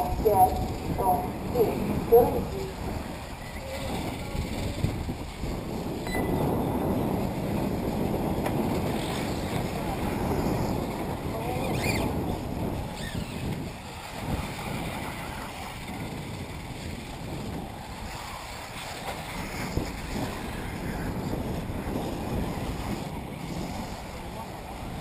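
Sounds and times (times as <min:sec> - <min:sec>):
wind buffeting microphone: 0:00.0 - 0:25.0
electric toy cars whining: 0:11.6 - 0:12.2, 0:12.9 - 0:17.2.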